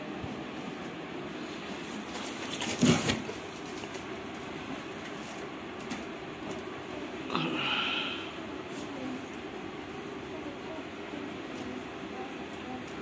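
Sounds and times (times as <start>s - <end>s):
fan being handled rustle: 0.0s - 6.9s, 8.5s - 10.3s
electric fan whooshing: 0.0s - 13.0s.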